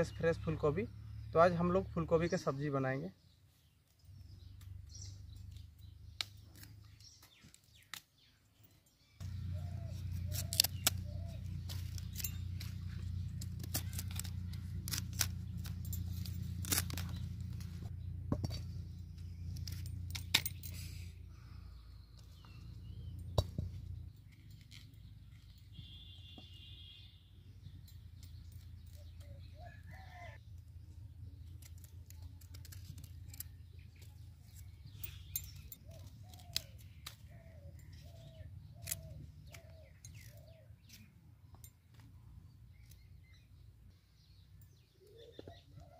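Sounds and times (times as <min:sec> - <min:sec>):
knife cutting cauliflower: 0:09.6 - 0:17.9.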